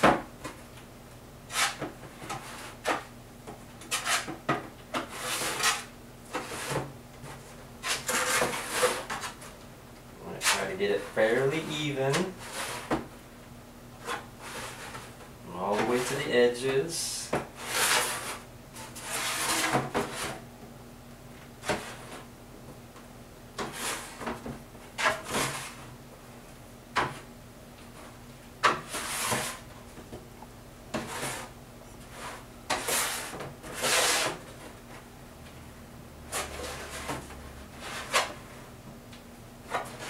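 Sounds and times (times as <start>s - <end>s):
painting knife scraping gesso: 1.5s - 1.8s, 3.8s - 4.3s, 32.1s - 34.4s.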